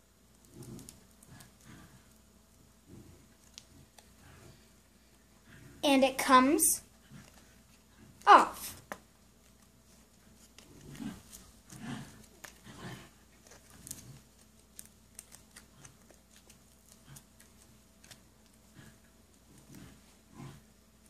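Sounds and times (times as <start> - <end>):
paper crinkling: 13.4 - 18.6.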